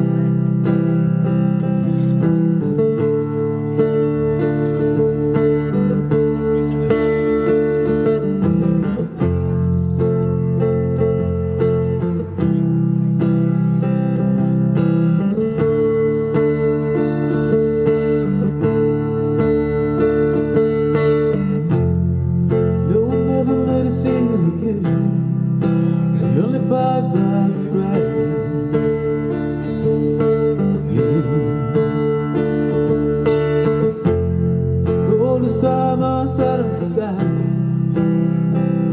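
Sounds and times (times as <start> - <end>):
soft rock band playing: 0.0 - 38.9
man singing: 22.7 - 25.4, 26.0 - 29.1, 30.7 - 32.3, 34.8 - 37.8.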